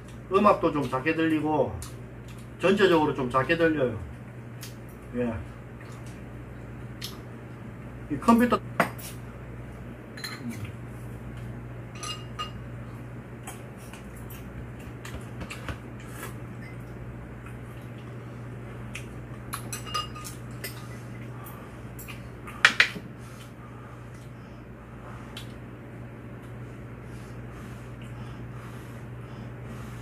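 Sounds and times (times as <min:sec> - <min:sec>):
steady low hum: 0:00.0 - 0:30.0
utensils clinking against dishes: 0:10.2 - 0:10.6, 0:11.9 - 0:12.6, 0:19.5 - 0:21.2.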